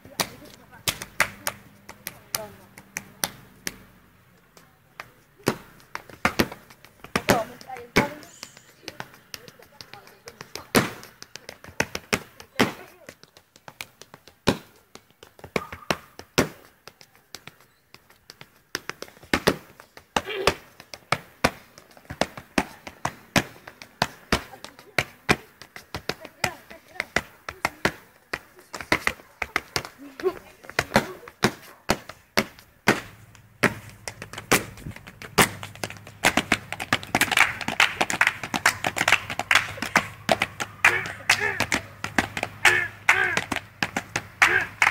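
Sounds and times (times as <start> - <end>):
shoes tapping on tiles: 0.0 - 44.9
hand claps: 0.2 - 3.8, 33.3 - 44.9.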